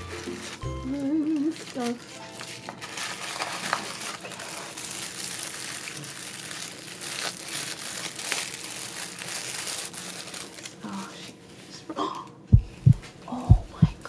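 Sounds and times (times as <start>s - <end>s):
sharp paper crackles: 0.0s - 11.2s
tissue paper crinkling: 0.0s - 11.3s.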